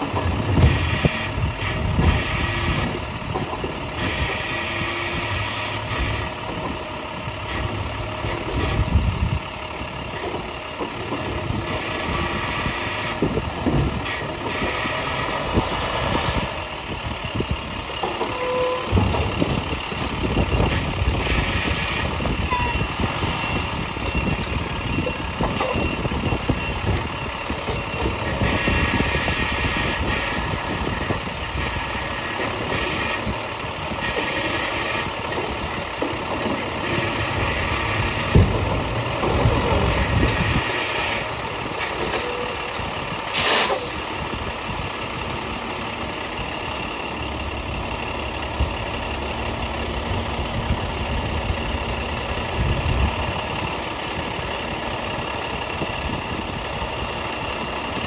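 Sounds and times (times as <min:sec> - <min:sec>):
garbage truck packing load: 0:00.0 - 0:04.9, 0:17.2 - 0:44.3
garbage truck diesel engine: 0:00.0 - 0:58.0
short sharp hiss: 0:43.3 - 0:43.9.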